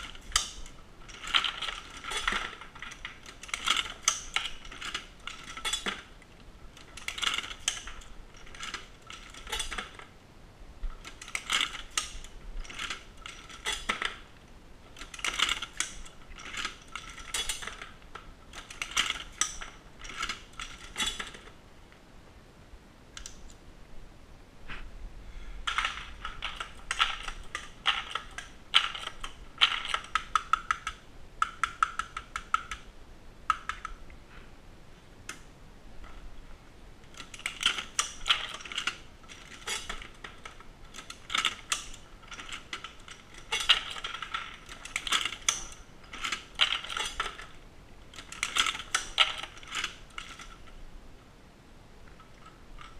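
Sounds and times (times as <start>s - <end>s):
reloading press metallic clicks: 0.0s - 6.1s, 11.0s - 14.2s, 14.9s - 21.5s, 37.1s - 50.7s.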